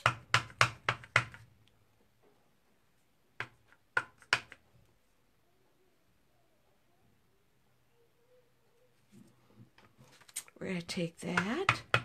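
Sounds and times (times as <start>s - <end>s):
stamping tools tapping: 0.0s - 1.4s, 11.2s - 12.0s.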